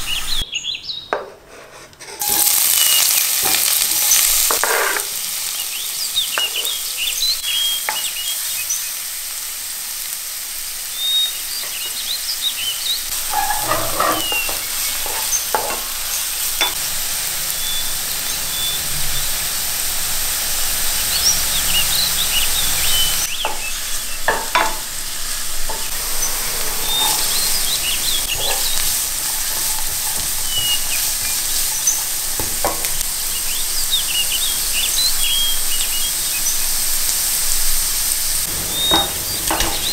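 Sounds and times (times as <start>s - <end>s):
spatula scraping pan: 1.3s - 2.8s, 3.4s - 5.3s, 13.1s - 16.9s, 22.8s - 33.0s, 38.5s - 39.9s
onion sizzling in oil: 2.1s - 39.9s.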